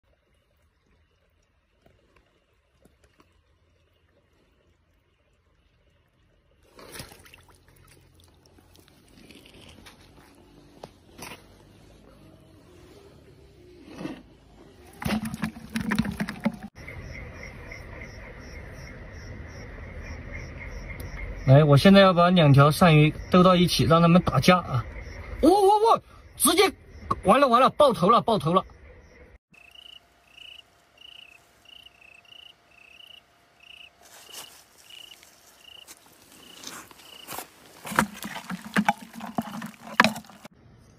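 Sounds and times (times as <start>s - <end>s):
splashes in shallow water: 6.6s - 9.8s
insects chirping in pulses: 16.8s - 27.5s, 28.6s - 37.7s.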